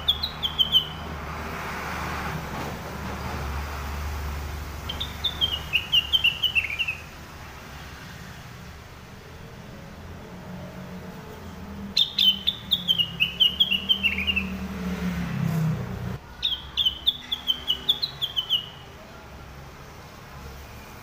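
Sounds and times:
bird singing bright notes: 0.0 - 1.1, 4.8 - 7.1, 12.0 - 14.6, 16.4 - 18.9.

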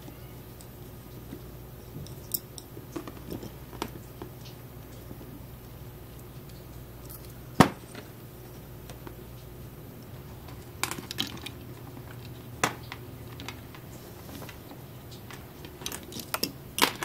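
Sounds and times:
plastic parts clicking: 10.5 - 14.6, 15.2 - 17.0.

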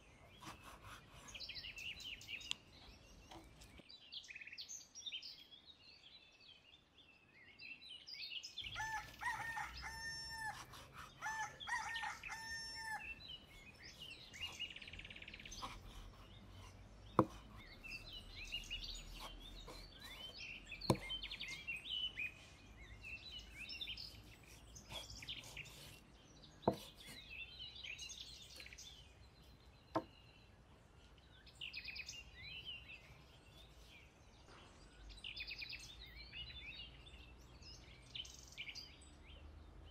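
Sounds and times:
small birds chirping: 0.0 - 39.9
rooster crowing: 8.7 - 13.2
cleaver knocking on chopping board: 17.1 - 17.6, 20.9 - 21.4, 26.7 - 27.2, 29.9 - 30.1.

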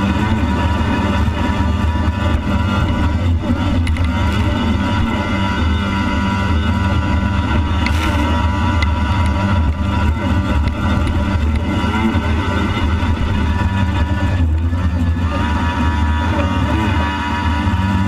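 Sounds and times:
jet ski engine running: 0.0 - 18.0.

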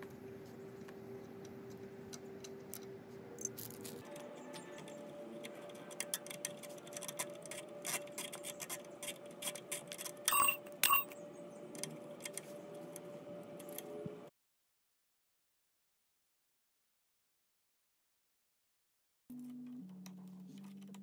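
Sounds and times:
faint steady hum: 0.0 - 14.3
hex key clicking on metal: 1.7 - 12.4
metal on metal clinks: 10.3 - 11.2.

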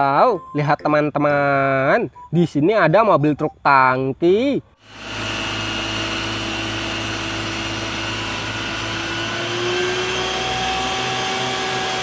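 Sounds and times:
truck engine and pump drone: 4.8 - 12.0.

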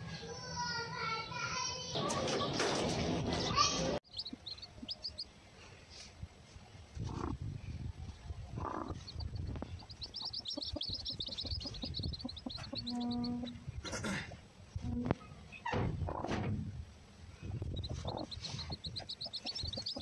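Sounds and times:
hen low rumbling: 1.1 - 20.0
high chirps: 8.9 - 13.2, 17.6 - 20.0.

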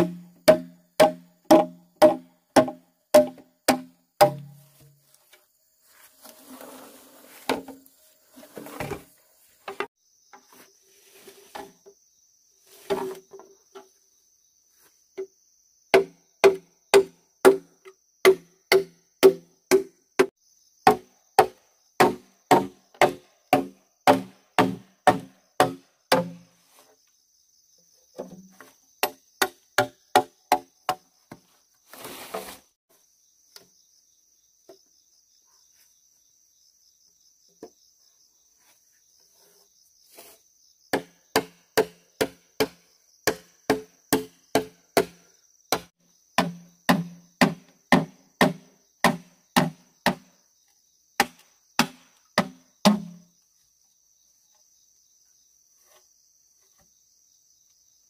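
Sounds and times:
sharp strikes on wood: 0.0 - 4.9, 15.9 - 26.5, 40.9 - 50.3, 51.2 - 53.3
high insect trill: 0.0 - 58.0.

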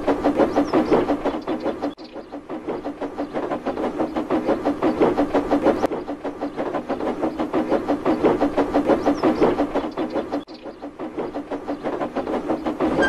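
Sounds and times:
steam locomotive chuffing: 0.0 - 13.0
train wheel clatter: 0.0 - 13.0.

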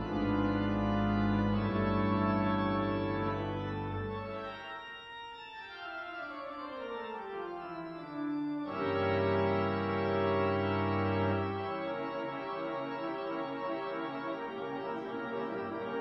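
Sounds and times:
church organ playing: 0.0 - 16.0.

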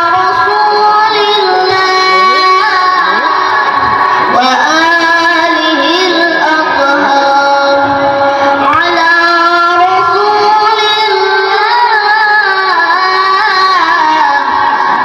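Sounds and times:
boy reciting melodically: 0.0 - 15.0.

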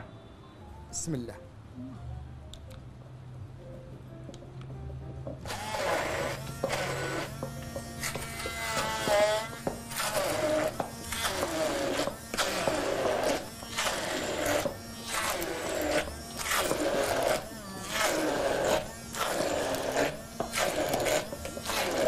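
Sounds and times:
immersion blender grinding: 5.5 - 22.0.

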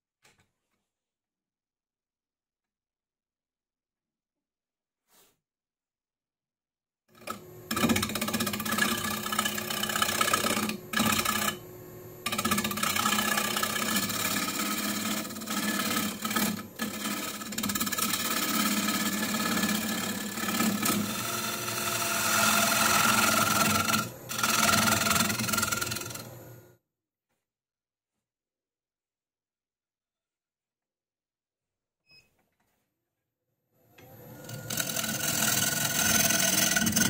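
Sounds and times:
gouge scraping wood on lathe: 7.2 - 26.6, 34.4 - 37.0
lathe motor hum: 7.2 - 26.7, 34.0 - 37.0.

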